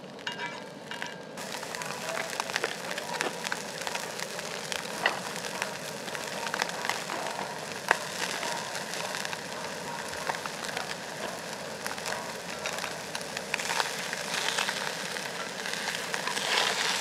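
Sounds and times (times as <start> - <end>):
beef sizzling in pan: 0.1 - 17.0.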